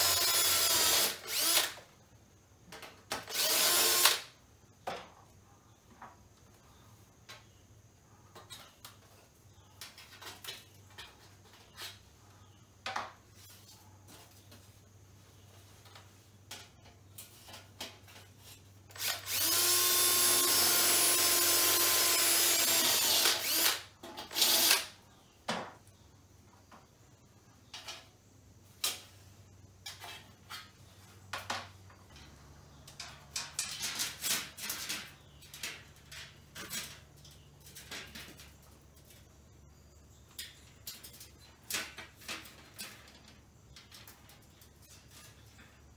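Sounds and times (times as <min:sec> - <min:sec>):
power drill running: 0:00.0 - 0:01.8, 0:03.3 - 0:04.2, 0:19.0 - 0:24.9.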